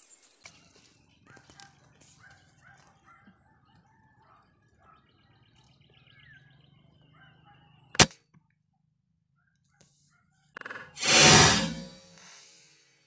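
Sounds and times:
small birds chirping: 4.7 - 7.9.

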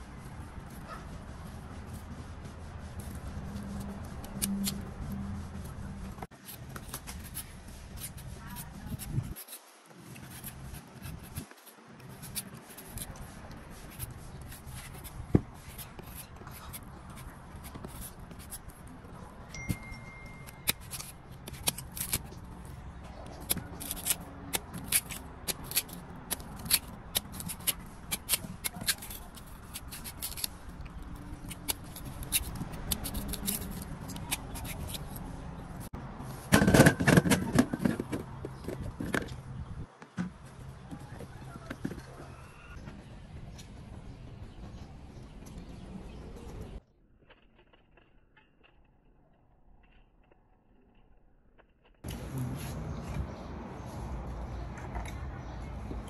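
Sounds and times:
knife cutting fruit: 3.0 - 5.7, 6.4 - 18.8, 19.6 - 35.9.

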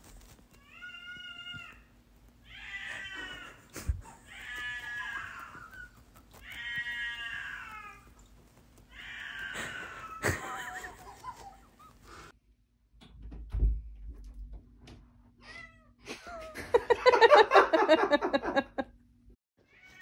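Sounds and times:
cat wailing and meowing: 0.6 - 8.2, 8.8 - 11.1.

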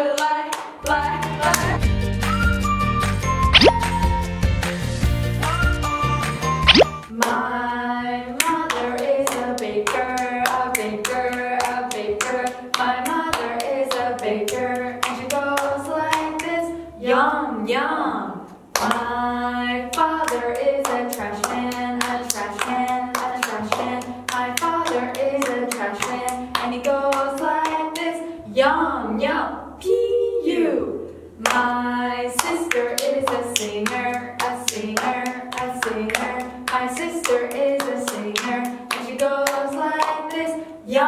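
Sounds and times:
hand clapping: 20.8 - 27.8, 32.4 - 40.3.

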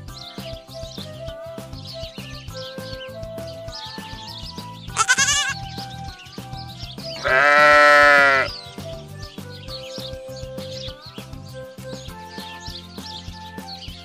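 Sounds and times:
light background music: 0.0 - 14.0
sheep bleating: 5.0 - 5.6, 7.2 - 8.5.

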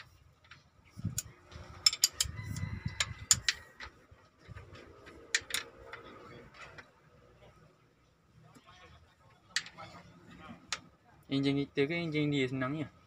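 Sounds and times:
wrench clinking on metal fittings: 0.4 - 3.9.

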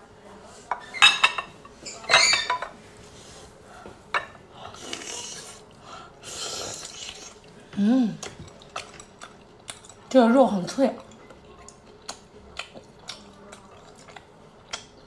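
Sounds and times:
wet chewing and sucking: 4.8 - 7.6.

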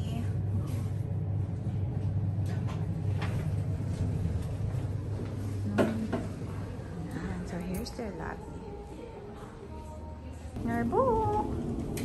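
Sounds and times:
elevator humming: 10.3 - 12.0.

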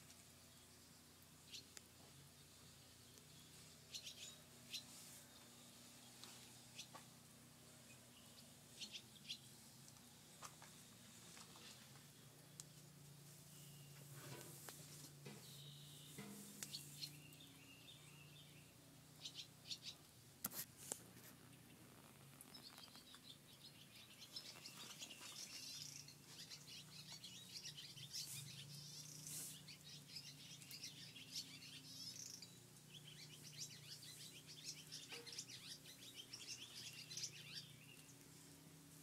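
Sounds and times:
birds twittering: 0.0 - 14.1, 15.2 - 20.1, 21.4 - 38.9.

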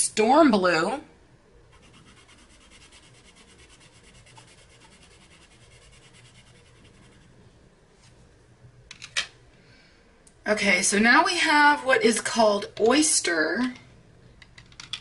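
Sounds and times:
colored pencil scribbling on paper: 1.7 - 7.3.

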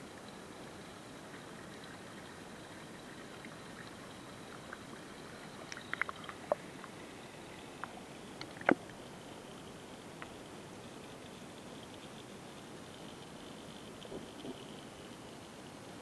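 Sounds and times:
muffled underwater hiss: 0.0 - 16.0
underwater clicks and pops: 5.6 - 6.6, 7.8 - 8.9.

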